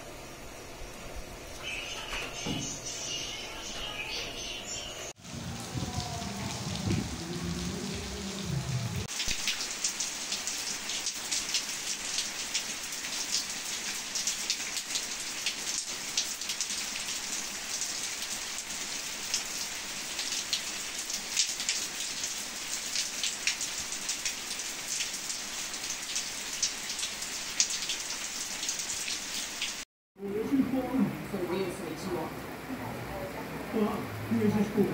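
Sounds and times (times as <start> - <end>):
rain hissing: 2.6 - 29.8
raindrops ticking on surfaces: 5.2 - 29.8.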